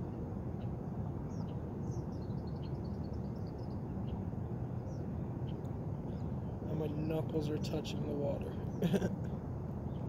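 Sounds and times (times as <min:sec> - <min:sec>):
small birds chirping: 0:00.0 - 0:09.1.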